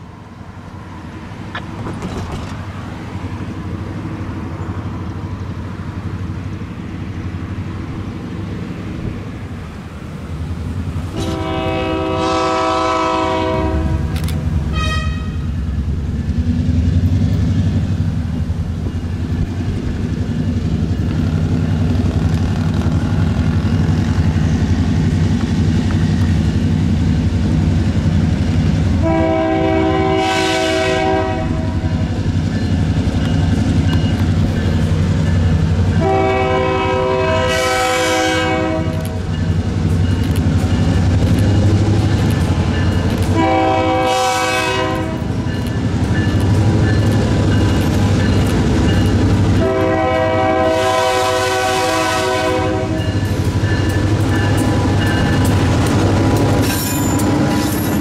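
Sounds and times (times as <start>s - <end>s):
locomotive air horn blasts: 11.1s - 15.6s, 29.0s - 31.9s, 36.0s - 39.2s, 43.3s - 45.3s, 49.6s - 53.2s.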